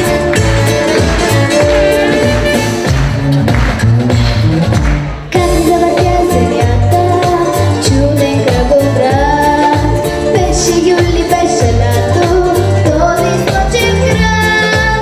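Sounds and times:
backing music with beat and bass: 0:00.0 - 0:15.0
girl singing into a microphone: 0:05.3 - 0:15.0.

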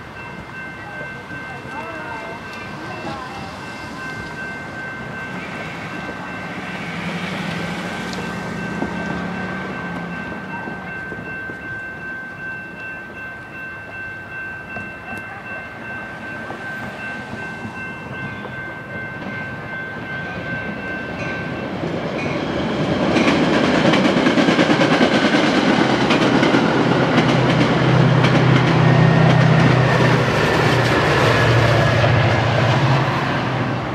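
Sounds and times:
steady high ringing tone: 0:00.0 - 0:22.8
diesel train passing: 0:00.0 - 0:33.9.

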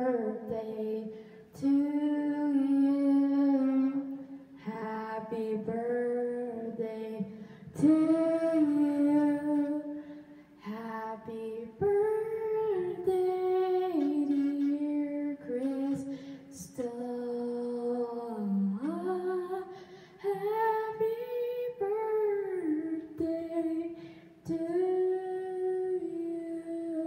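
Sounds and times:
girl singing: 0:00.0 - 0:27.0
singer breathing: 0:07.3 - 0:07.8, 0:09.9 - 0:10.6, 0:16.0 - 0:16.5, 0:19.7 - 0:20.2, 0:23.9 - 0:24.4.

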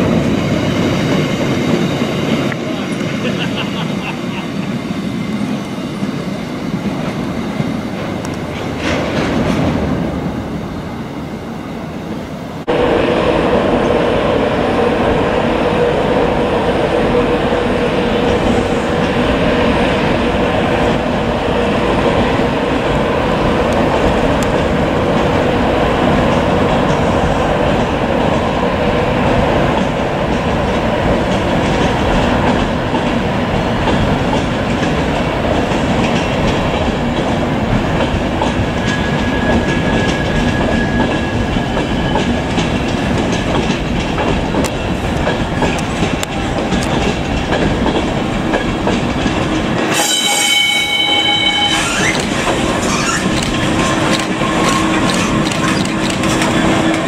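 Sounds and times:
diesel locomotive engine humming: 0:00.0 - 0:57.0
freight wagons rolling on track: 0:29.8 - 0:49.9, 0:51.5 - 0:57.0.

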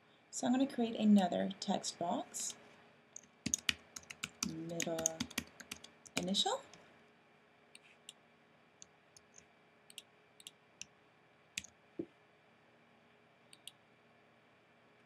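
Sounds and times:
computer keyboard keystrokes: 0:03.2 - 0:06.8.

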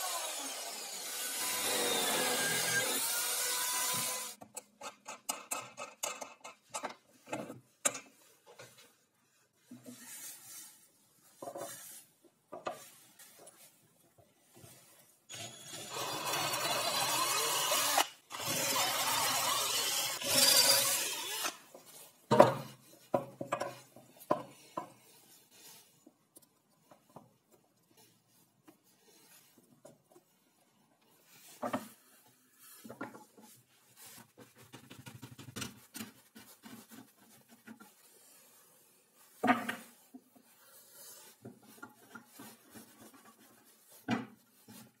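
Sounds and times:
power drill boring into wood: 0:00.0 - 0:04.4, 0:15.3 - 0:21.6.

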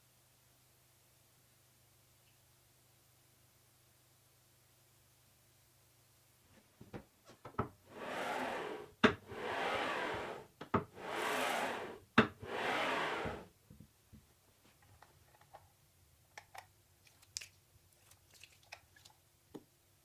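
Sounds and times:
saw carriage sliding on rails: 0:07.9 - 0:13.5.

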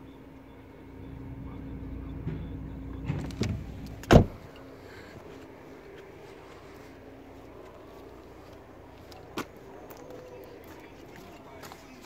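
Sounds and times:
car tailgate slamming: 0:02.2 - 0:04.5.

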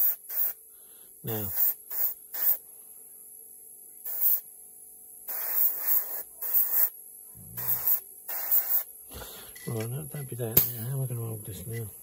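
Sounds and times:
airbrush spraying: 0:00.0 - 0:00.6, 0:01.3 - 0:02.6, 0:04.0 - 0:04.4, 0:05.3 - 0:06.9, 0:07.6 - 0:08.9
faint steady hum: 0:00.2 - 0:12.0.

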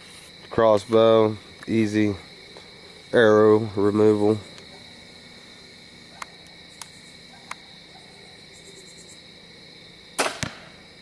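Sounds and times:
crickets chirping: 0:00.0 - 0:11.0
faint ticks: 0:06.2 - 0:07.6.

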